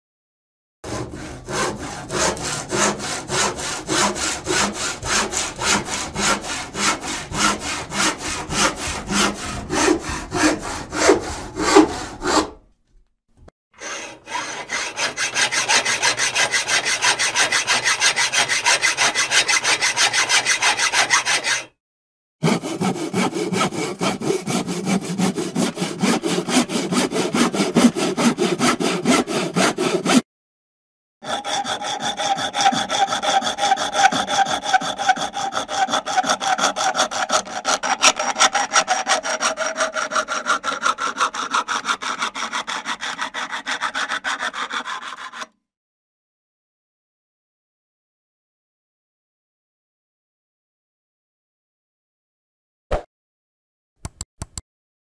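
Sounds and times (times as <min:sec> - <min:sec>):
handsaw cutting: 0:00.8 - 0:12.6, 0:13.8 - 0:21.8, 0:22.4 - 0:30.2, 0:31.2 - 0:45.5.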